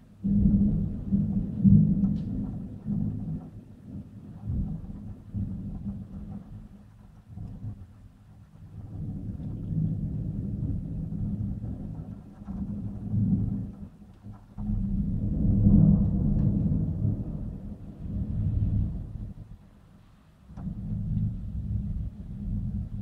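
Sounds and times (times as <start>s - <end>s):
thunder rumbling: 0.0s - 23.0s.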